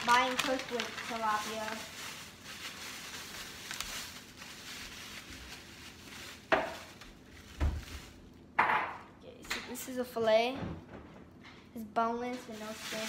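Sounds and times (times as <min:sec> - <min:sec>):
paper and plastic rustling: 0:00.0 - 0:08.5, 0:12.2 - 0:13.0.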